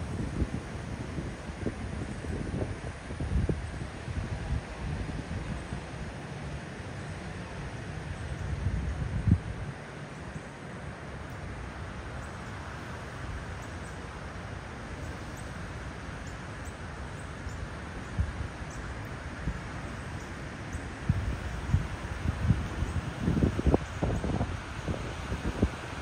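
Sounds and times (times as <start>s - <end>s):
wind buffeting microphone: 0.0s - 6.2s, 8.1s - 9.9s, 20.6s - 26.0s
leaves rustling: 0.0s - 26.0s
rushing wind: 0.0s - 26.0s.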